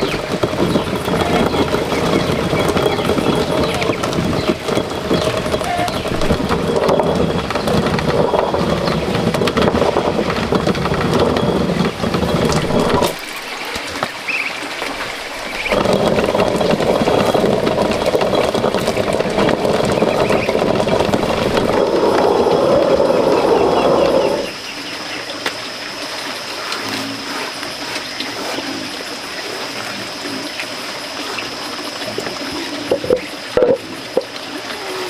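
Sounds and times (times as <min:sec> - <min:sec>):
stone quern grinding corn: 0:00.0 - 0:14.1, 0:14.9 - 0:24.6.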